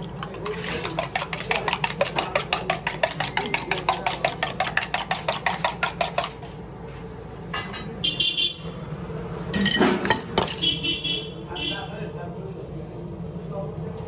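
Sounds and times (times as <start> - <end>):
metal utensil clinking on dish: 9.6 - 10.7.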